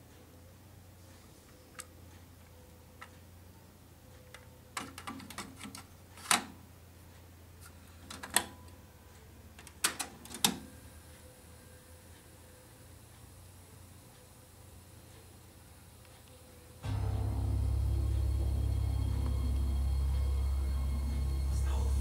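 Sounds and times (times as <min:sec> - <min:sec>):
low steady hum: 0:10.6 - 0:22.0.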